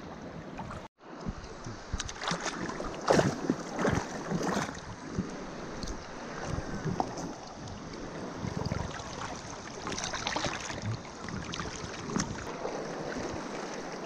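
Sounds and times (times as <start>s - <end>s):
small splashes and clicks: 1.3s - 4.8s.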